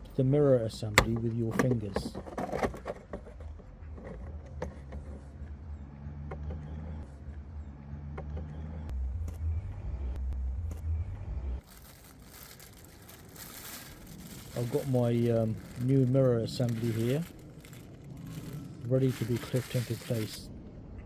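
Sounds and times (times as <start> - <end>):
vehicle engine droning: 3.3 - 21.0
plastic bag crinkling: 11.6 - 20.5.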